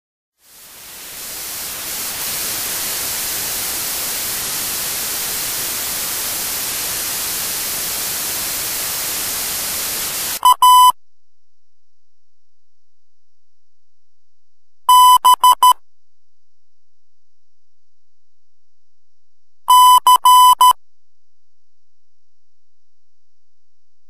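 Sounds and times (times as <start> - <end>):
static hiss: 0.4 - 10.6
morse code beeps: 10.4 - 11.0, 14.9 - 15.8, 19.7 - 20.8.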